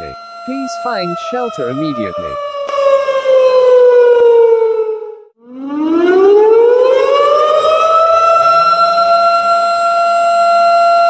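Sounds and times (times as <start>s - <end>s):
warning siren winding: 0.0s - 5.2s.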